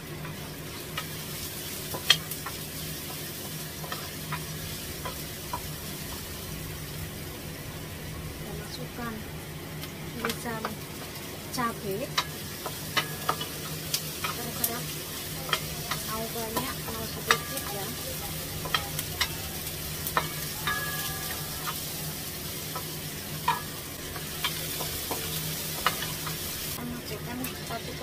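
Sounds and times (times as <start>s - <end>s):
shallots sizzling in a wok: 0.0s - 28.0s.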